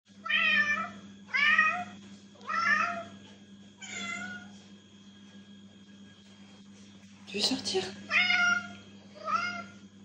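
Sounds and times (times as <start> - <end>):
cat meowing: 3.8 - 4.5, 8.1 - 9.8.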